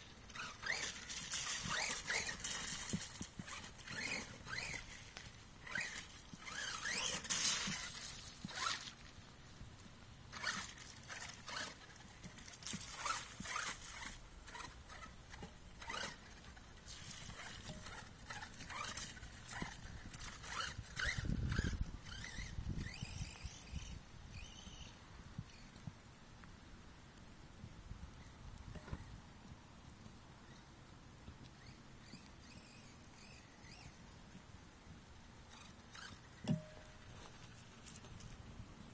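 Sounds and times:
crackling noises: 0:00.0 - 0:23.0, 0:35.5 - 0:38.9.

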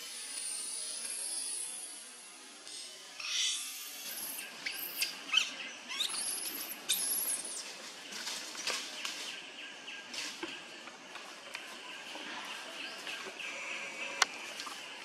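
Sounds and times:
monkeys squealing: 0:03.2 - 0:07.6.

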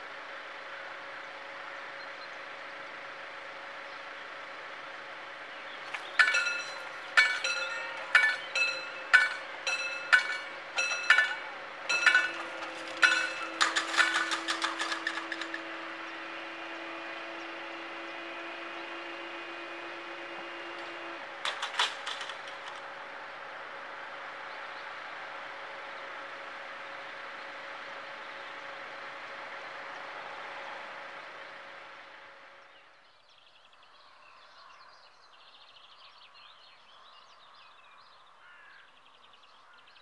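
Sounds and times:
barrier motor humming: 0:02.5 - 0:32.6
metallic clanks: 0:05.9 - 0:15.7, 0:20.8 - 0:22.8
level crossing bell ringing: 0:06.2 - 0:12.4.

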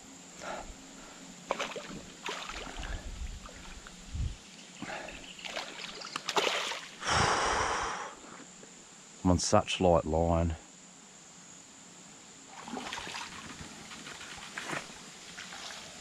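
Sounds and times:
fish splashing and thrashing: 0:01.5 - 0:03.8, 0:05.4 - 0:07.0, 0:12.6 - 0:15.8.

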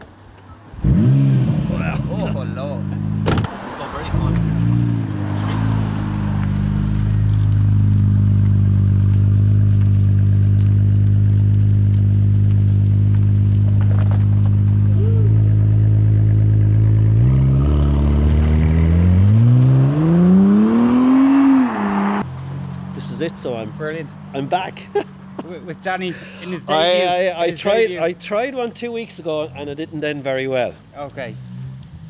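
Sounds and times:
car engine idling and revving: 0:00.8 - 0:25.9.

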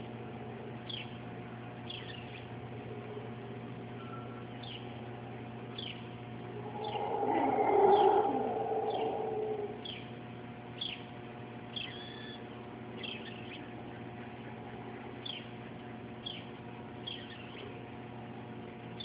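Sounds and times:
faint steady hum: 0:00.0 - 0:19.0
bird chirping: 0:05.8 - 0:10.1.

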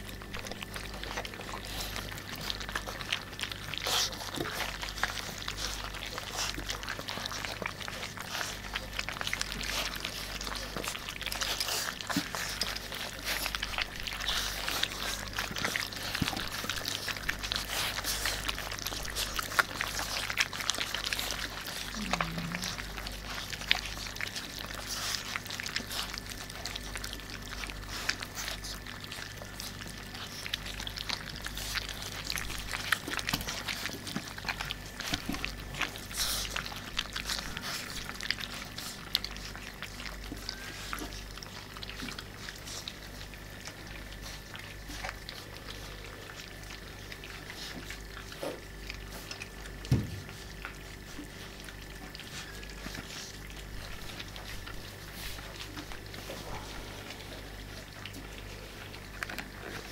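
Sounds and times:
puppies smacking and chewing: 0:00.0 - 0:59.9.

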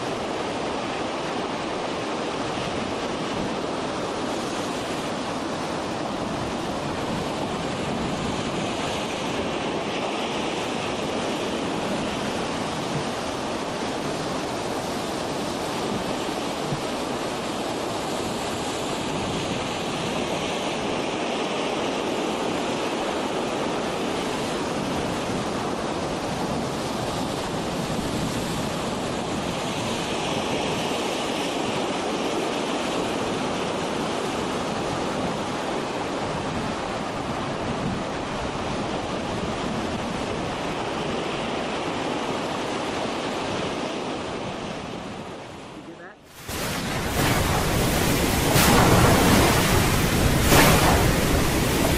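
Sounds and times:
lake water washing against shore: 0:00.0 - 0:51.9
wind buffeting microphone: 0:33.1 - 0:51.9.

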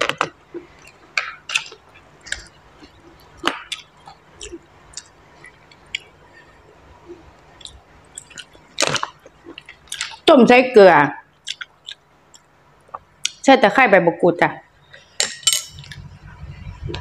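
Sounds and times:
mouth smacking and chewing: 0:00.0 - 0:06.2, 0:07.0 - 0:10.3, 0:11.4 - 0:13.4.

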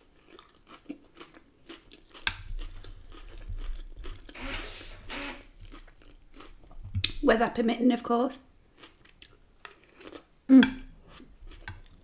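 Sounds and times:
chewing and crunching salad: 0:00.0 - 0:04.4, 0:05.4 - 0:07.2, 0:08.6 - 0:12.0.

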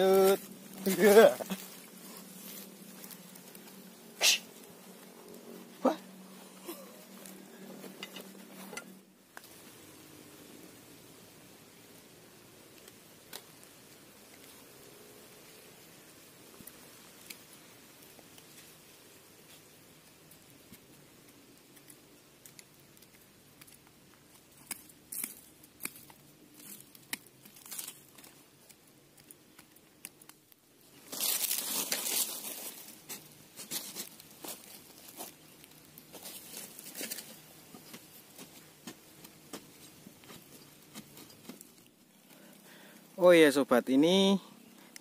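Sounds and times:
roots rustling and tearing: 0:00.0 - 0:08.8, 0:12.8 - 0:43.2.

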